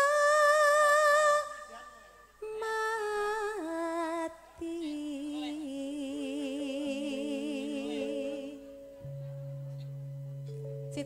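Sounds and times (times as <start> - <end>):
woman singing into microphone: 0.0 - 1.8, 2.4 - 8.8.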